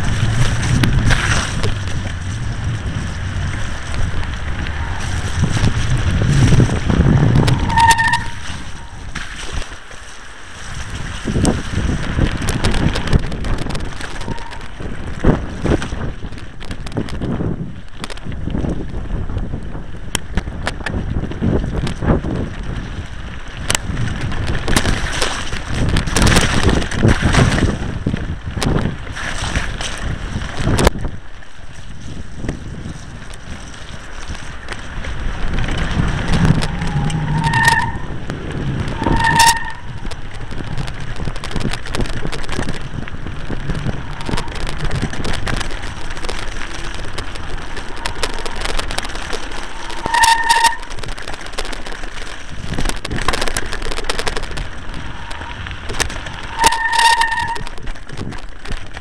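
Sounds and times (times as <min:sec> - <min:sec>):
wind buffeting microphone: 0:00.0 - 0:09.8, 0:10.4 - 0:59.0
bike rattling over stones: 0:00.0 - 0:59.0
short high squeals: 0:07.6 - 0:09.0, 0:56.4 - 0:57.8.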